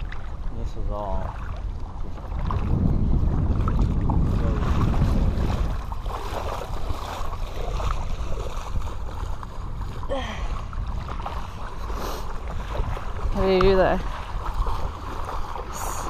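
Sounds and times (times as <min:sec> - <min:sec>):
feet wading through water: 0:00.0 - 0:16.0
wind buffeting microphone: 0:00.0 - 0:16.0.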